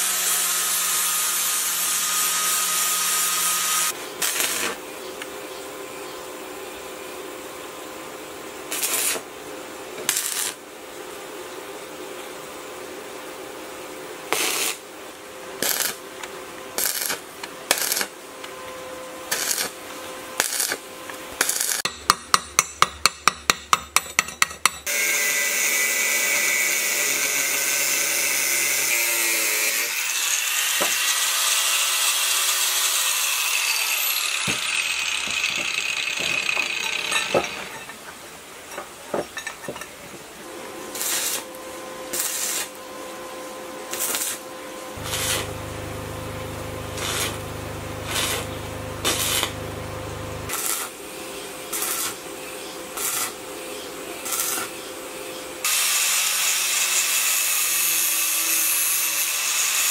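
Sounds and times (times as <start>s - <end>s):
angle grinder cutting steel: 0.0s - 4.8s, 16.8s - 18.1s, 19.3s - 19.8s, 24.8s - 37.9s, 42.1s - 42.8s, 43.9s - 44.4s, 45.0s - 51.0s, 51.6s - 52.2s, 53.0s - 53.4s, 54.2s - 54.8s, 55.6s - 59.9s
arc welding bursts: 0.0s - 4.8s, 8.7s - 9.3s, 10.1s - 10.6s, 14.3s - 14.8s, 15.6s - 16.1s, 16.8s - 18.1s, 19.3s - 19.8s, 20.4s - 20.8s, 21.4s - 21.9s, 40.8s - 42.8s, 43.9s - 53.6s, 54.2s - 54.8s, 55.6s - 59.9s.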